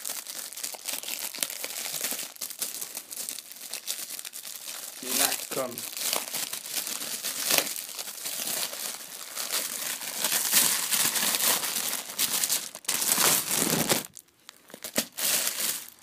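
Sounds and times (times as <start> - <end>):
plastic wrapping crinkling: 0.0 - 16.0.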